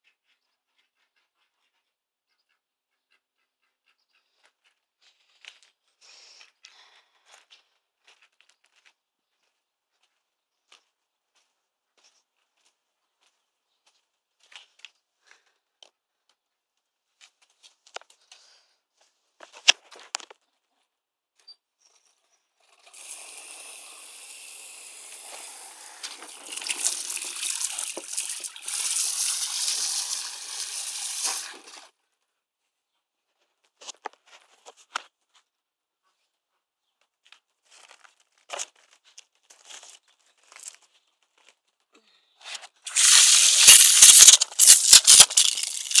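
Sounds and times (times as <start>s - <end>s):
water running and splashing: 25.2s - 31.9s.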